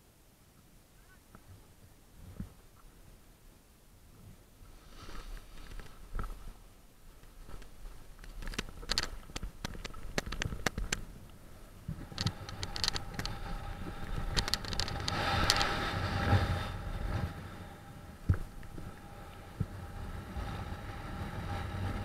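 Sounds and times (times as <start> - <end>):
wind rushing over microphone: 7.4 - 22.0
gear rattling: 12.0 - 16.4.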